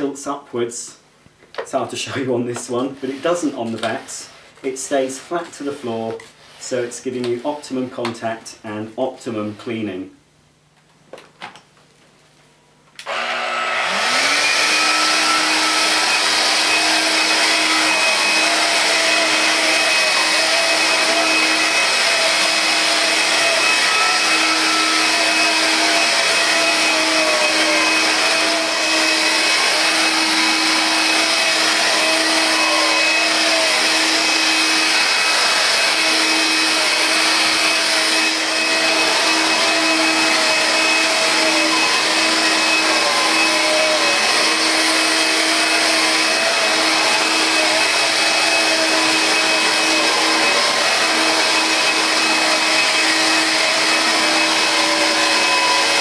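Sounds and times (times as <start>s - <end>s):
vacuum cleaner running on carpet: 13.0s - 56.0s.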